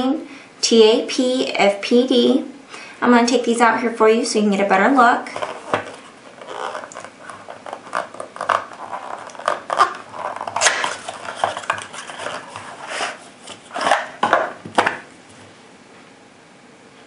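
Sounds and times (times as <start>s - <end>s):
cardboard rustling and scraping: 5.3s - 15.6s.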